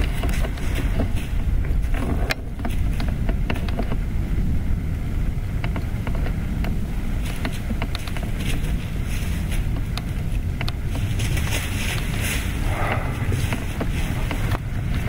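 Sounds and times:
wind rumble on microphone: 0:00.0 - 0:15.0
dry leaves crackling underfoot: 0:06.8 - 0:15.0.

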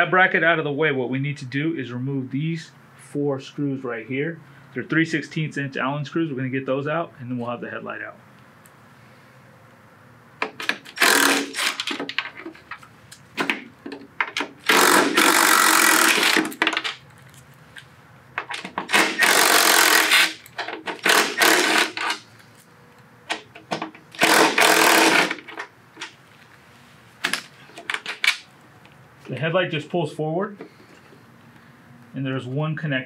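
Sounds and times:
drill clicks: 0:10.4 - 0:17.0, 0:18.4 - 0:22.3, 0:23.3 - 0:26.2
cordless drill whirring: 0:10.9 - 0:11.9, 0:14.6 - 0:16.6, 0:18.9 - 0:22.1, 0:24.1 - 0:25.5.

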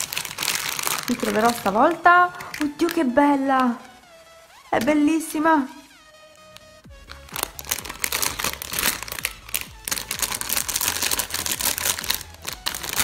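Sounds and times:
foil packet crinkling: 0:00.0 - 0:04.0, 0:07.0 - 0:13.0.

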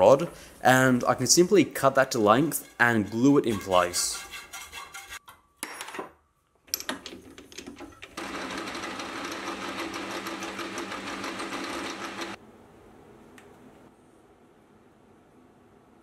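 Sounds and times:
metal lathe running: 0:08.2 - 0:12.4.

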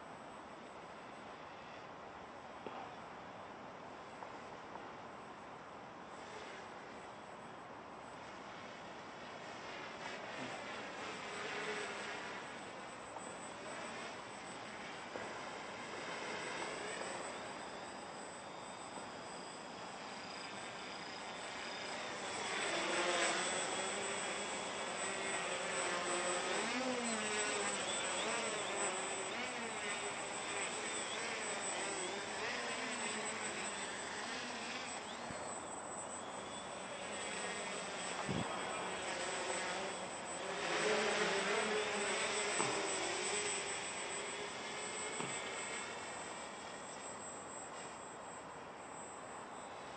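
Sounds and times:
thin steady high tone: 0:00.0 - 0:49.9
quadcopter propellers buzzing: 0:08.2 - 0:48.2.

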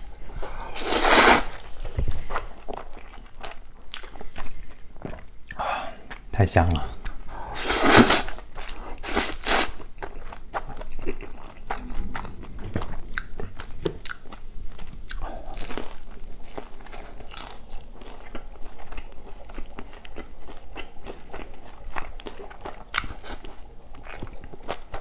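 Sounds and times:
person slurping noodles: 0:00.4 - 0:02.4, 0:07.5 - 0:08.4, 0:09.0 - 0:09.8
chewing with clicks and crunches: 0:01.8 - 0:07.3, 0:08.3 - 0:09.0, 0:09.8 - 0:25.0.

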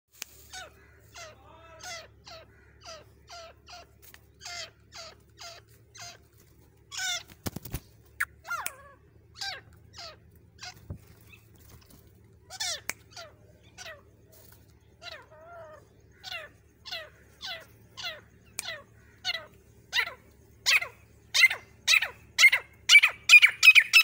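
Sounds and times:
francolin calling: 0:00.2 - 0:24.0.

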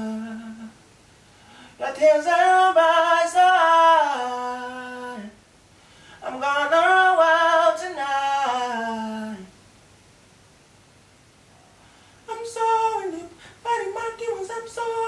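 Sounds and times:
man singing alone: 0:00.0 - 0:00.8, 0:01.7 - 0:05.4, 0:06.2 - 0:09.6, 0:12.2 - 0:15.0.

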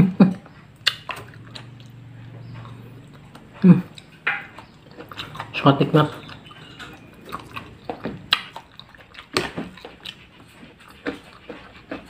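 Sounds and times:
wet chewing and mouth smacking: 0:00.0 - 0:12.0
sharp mouth clicks: 0:00.8 - 0:05.5.

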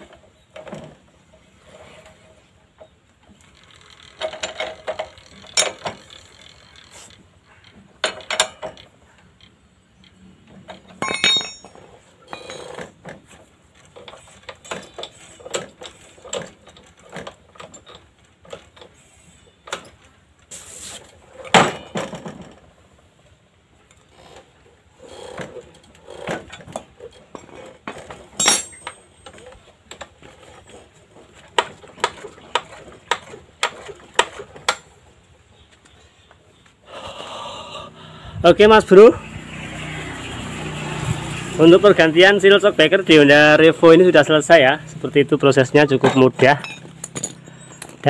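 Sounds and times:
spanner and metal parts clinking: 0:03.3 - 0:12.9, 0:25.1 - 0:30.9, 0:45.8 - 0:48.0.

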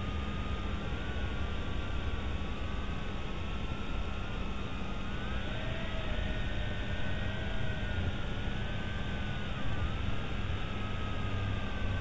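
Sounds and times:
quadcopter motors whining: 0:05.0 - 0:12.0.

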